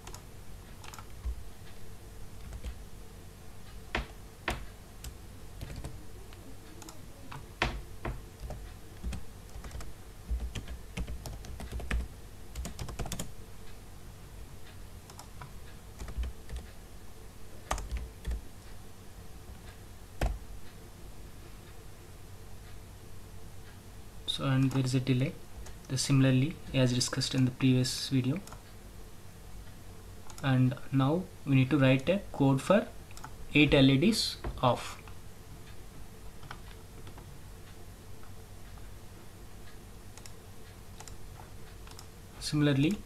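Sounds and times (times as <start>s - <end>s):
computer keyboard typing: 0.0s - 0.2s, 0.8s - 1.4s, 2.4s - 2.8s, 4.0s - 6.0s, 6.8s - 13.3s, 15.1s - 16.8s, 17.6s - 18.4s, 20.2s - 20.4s, 33.1s - 33.8s, 36.4s - 37.3s, 40.1s - 40.4s, 41.0s - 41.2s, 41.8s - 42.1s
faint low hum: 0.0s - 43.0s.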